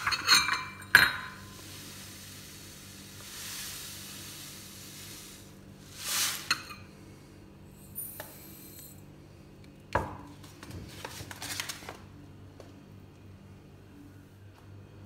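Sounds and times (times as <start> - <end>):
grains pouring into a glass bowl: 1.4 - 6.6
grains clinking in a glass bowl: 3.2 - 6.9, 7.8 - 9.0.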